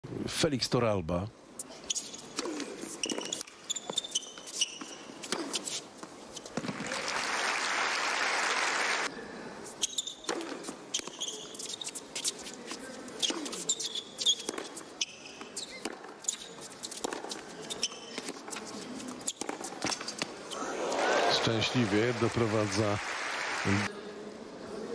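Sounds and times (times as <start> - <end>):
shoe squeaks: 1.6 - 6.8, 9.7 - 20.8
tennis ball bouncing: 2.1 - 7.1, 9.8 - 20.4
crowd applause: 6.7 - 9.1, 20.6 - 23.9
racket striking ball: 10.2 - 11.2.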